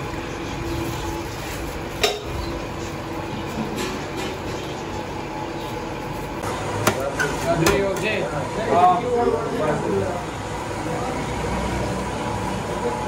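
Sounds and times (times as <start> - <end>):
metal utensils and dishes clinking: 0.9 - 2.6, 3.4 - 4.9.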